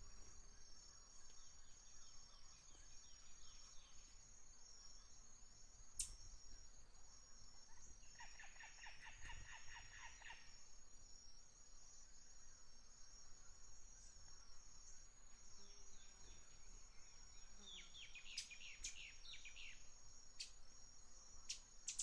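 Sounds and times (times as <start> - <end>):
high pulsing insect chirring: 0.0 - 22.0.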